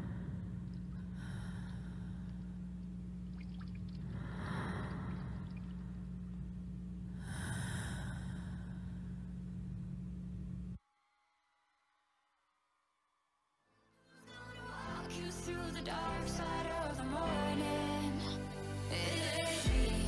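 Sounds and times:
person breathing: 0.0 - 2.7, 4.1 - 5.6, 7.1 - 9.3
low electrical hum: 0.0 - 10.8.

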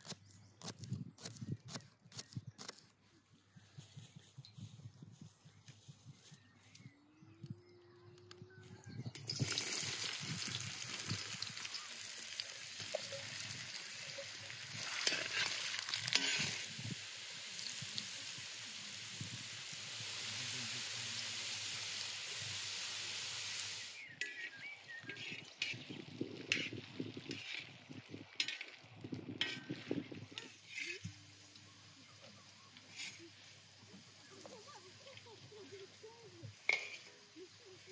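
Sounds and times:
potatoes sizzling in hot oil: 9.0 - 37.9
metal spatula scraping pan: 14.8 - 16.7, 24.2 - 27.7, 28.4 - 28.8, 29.4 - 31.2, 32.9 - 33.3, 36.6 - 37.3.

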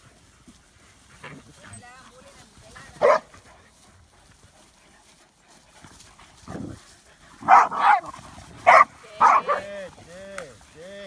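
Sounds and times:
dogs barking: 3.0 - 3.4, 7.4 - 9.7.

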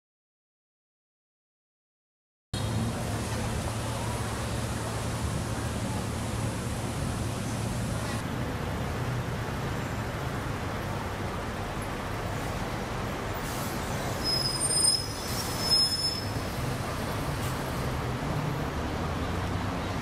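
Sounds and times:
traffic engine hum: 2.6 - 20.0
bus brakes squealing: 13.4 - 18.0.

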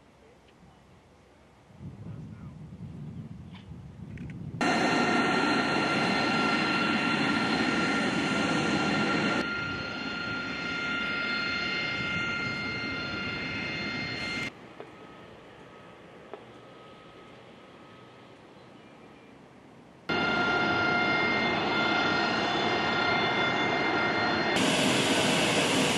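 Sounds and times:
jet engines running: 4.6 - 18.5, 20.1 - 25.9.

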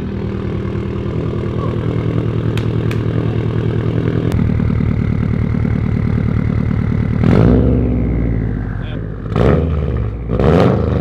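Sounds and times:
car engine idling with deep burble: 0.0 - 9.3.

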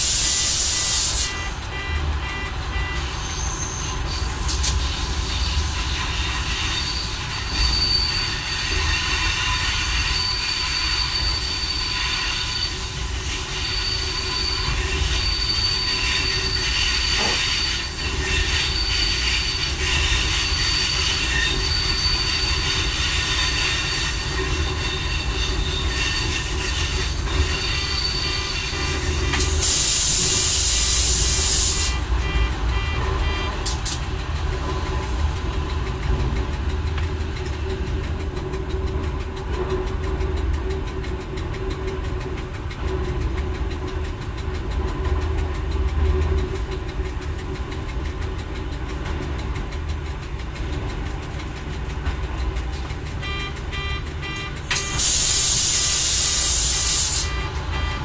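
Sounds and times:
loud hiss: 0.0 - 1.4, 29.4 - 32.0, 54.8 - 57.4
wheel squeal: 0.0 - 38.2, 44.9 - 58.0
railcar low rumble: 0.0 - 58.0.

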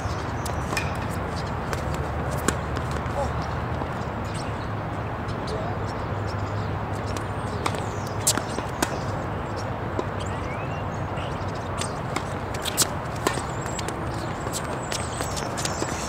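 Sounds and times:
tennis ball struck and bouncing: 0.4 - 3.6, 7.1 - 9.1, 11.8 - 16.0.

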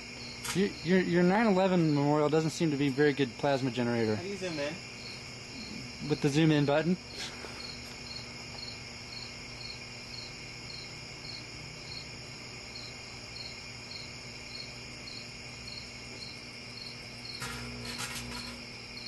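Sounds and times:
cricket chirping: 0.0 - 19.0
microwave oven humming: 3.9 - 19.0.

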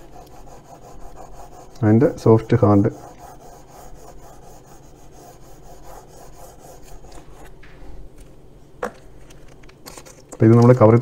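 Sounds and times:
charcoal scratching on paper: 0.0 - 7.6.

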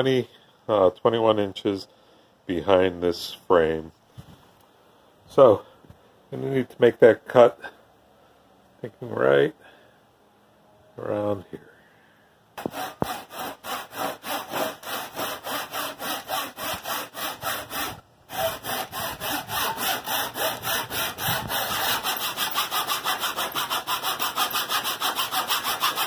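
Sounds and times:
handsaw cutting wood: 12.6 - 26.0.

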